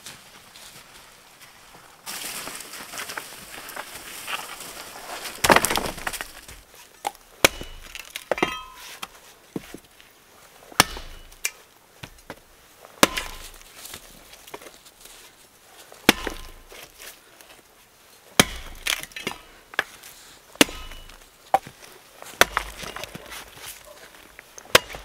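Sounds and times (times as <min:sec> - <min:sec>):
footsteps in dry leaves: 0:00.0 - 0:06.7
axe chopping wood: 0:05.4 - 0:06.4, 0:07.0 - 0:09.7, 0:10.8 - 0:12.4, 0:13.0 - 0:14.0, 0:16.1 - 0:16.9, 0:18.4 - 0:20.0, 0:20.6 - 0:23.8, 0:24.6 - 0:25.0.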